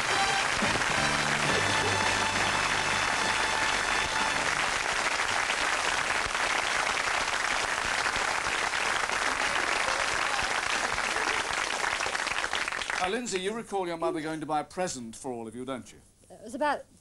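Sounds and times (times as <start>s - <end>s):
studio audience applauding: 0.0s - 13.6s.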